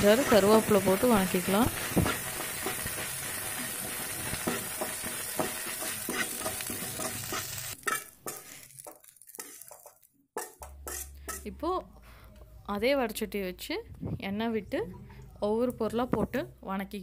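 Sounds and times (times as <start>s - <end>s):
leaves sizzling in a pan: 0.0s - 11.4s
spoon scraping a pan: 1.8s - 11.6s.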